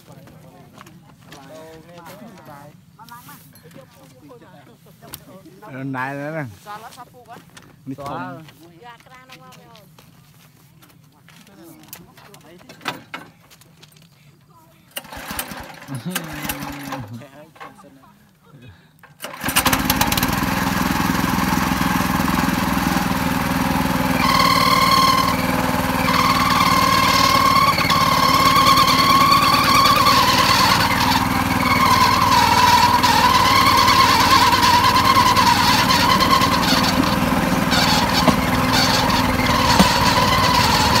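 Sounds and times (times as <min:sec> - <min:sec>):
rail cart engine and rattle: 0:15.0 - 0:16.9, 0:19.2 - 0:41.0.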